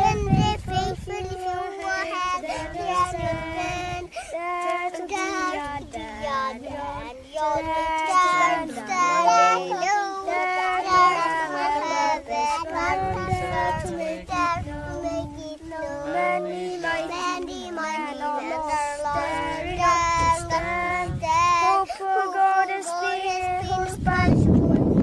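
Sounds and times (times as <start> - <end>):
children singing: 0.0 - 24.5.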